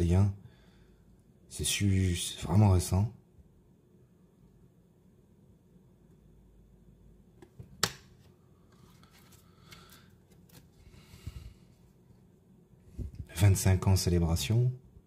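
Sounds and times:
cards rustling and sliding: 8.2 - 10.9.

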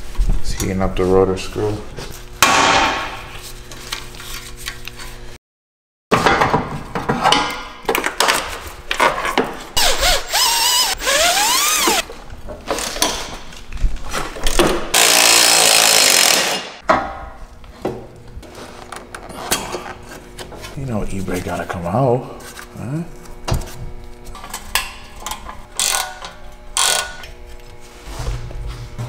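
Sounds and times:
impact wrench running: 9.8 - 12.1, 14.6 - 16.8, 25.6 - 27.3.

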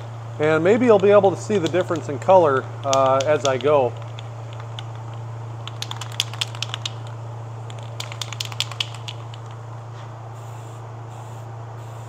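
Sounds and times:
steady low hum: 0.0 - 12.0
spray can rattling: 7.7 - 9.6.

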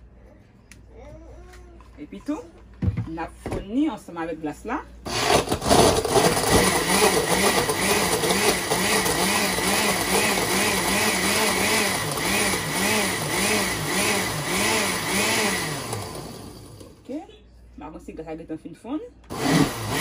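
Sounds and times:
ice crunching in blender: 5.1 - 16.9, 19.3 - 20.0
blender motor running: 5.1 - 17.0, 19.3 - 20.0.

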